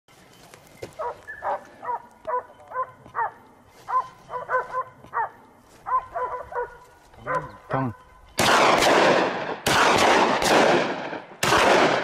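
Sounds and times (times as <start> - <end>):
dog barking in high-pitched yelps: 1.0 - 7.6.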